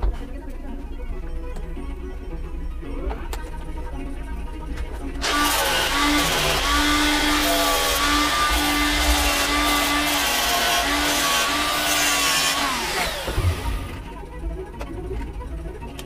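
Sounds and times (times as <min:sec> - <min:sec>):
angle grinder whining: 0:05.2 - 0:14.2.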